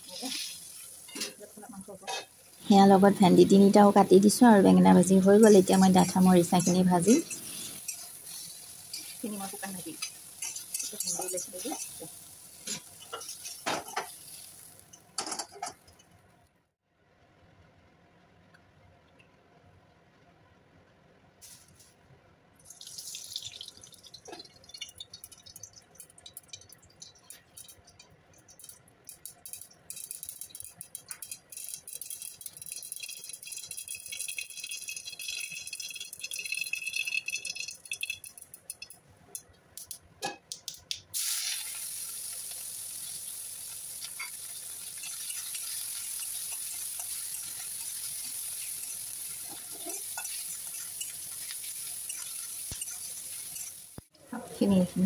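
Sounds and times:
onions sizzling in oil: 0.0 - 15.7, 41.1 - 55.0
hot oil crackling and popping: 0.0 - 16.6, 22.6 - 55.0.

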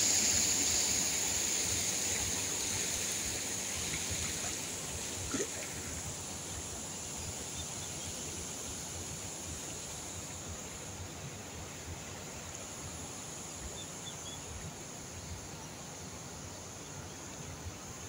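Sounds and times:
water rushing over weir: 0.0 - 7.5.

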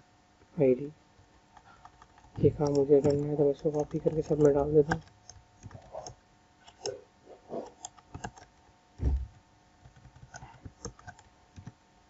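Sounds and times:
keyboard key clicks: 7.7 - 8.5
dull loud thump: 9.0 - 9.3.

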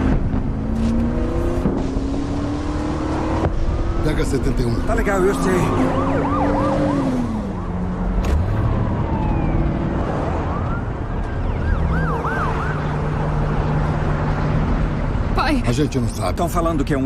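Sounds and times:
car engine hum: 0.0 - 17.0
police siren yelping: 5.1 - 13.2.

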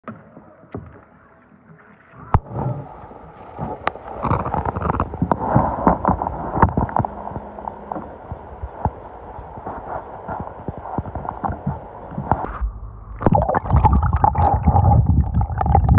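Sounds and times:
moving water heard underwater: 0.1 - 15.9
water sloshing and gurgling: 1.7 - 12.5, 13.1 - 15.9.

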